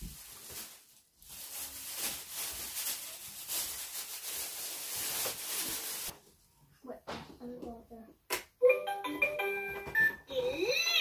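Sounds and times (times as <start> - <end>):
packaging rustling: 0.0 - 6.2.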